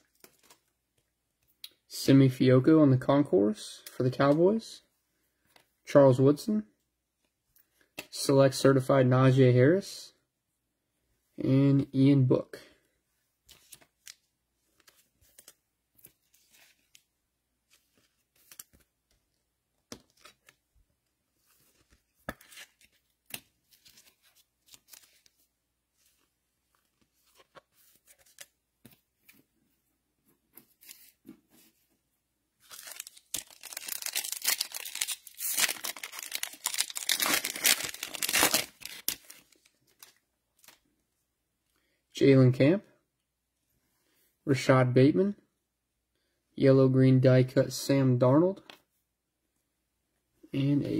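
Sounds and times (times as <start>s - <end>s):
cards clicking and rustling: 32.6s - 40.8s
foil wrapper tearing and crinkling: 32.7s - 39.5s.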